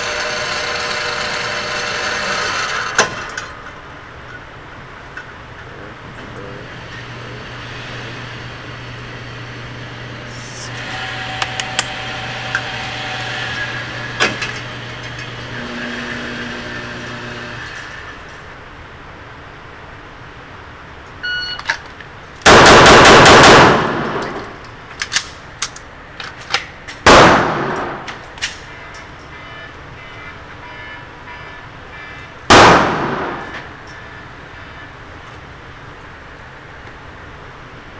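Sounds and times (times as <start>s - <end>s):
motorized target carrier humming: 0.0s - 3.8s, 5.6s - 18.7s
pistol shots echoing indoors: 22.4s - 24.4s, 27.0s - 28.2s, 32.5s - 33.5s.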